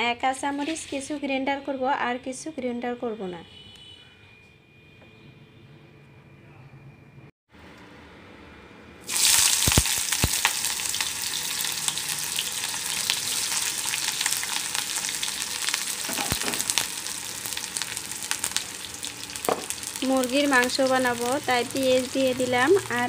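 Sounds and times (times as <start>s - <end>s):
onions sizzling in hot oil: 9.0s - 23.0s
knocks on pan: 16.1s - 16.7s, 19.5s - 19.8s.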